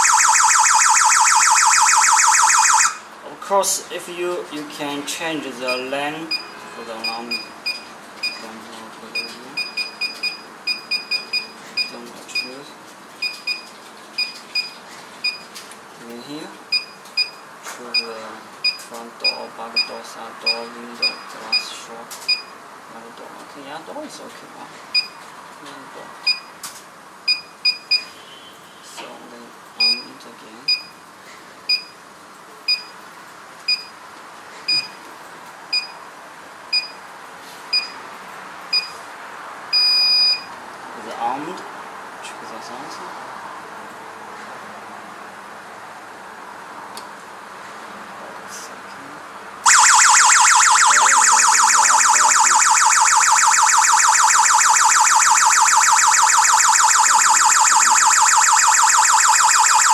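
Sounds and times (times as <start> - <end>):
keypad beeps: 5.7 - 8.4, 9.2 - 12.5, 13.2 - 15.5, 16.7 - 19.9, 22.3 - 22.5, 27.3 - 28.1, 29.8 - 30.0, 31.7 - 31.9, 32.7 - 32.9, 33.7 - 33.9, 34.7 - 35.0, 35.7 - 36.0, 36.7 - 37.0, 37.7 - 38.0, 38.7 - 38.9, 39.8 - 40.5
alarm panel short beeps: 39.8 - 40.5.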